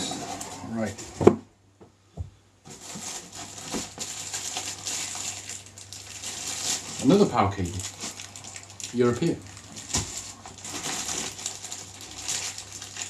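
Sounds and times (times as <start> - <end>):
plastic packaging crinkling: 2.7 - 13.0.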